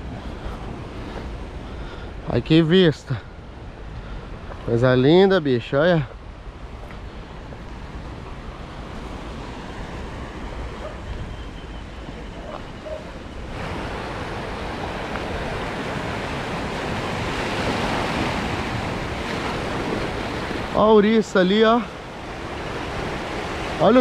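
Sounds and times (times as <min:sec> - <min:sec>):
wind on microphone: 0:06.2 - 0:20.8
surf washing against rocks: 0:12.2 - 0:24.0.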